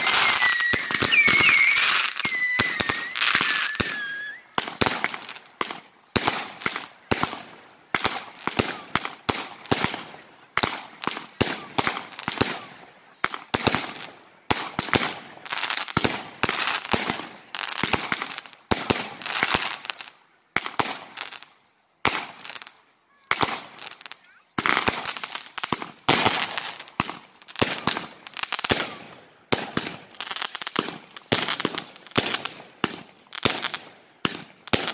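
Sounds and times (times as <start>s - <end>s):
fireworks bursting with sharp bangs: 0.0s - 34.9s.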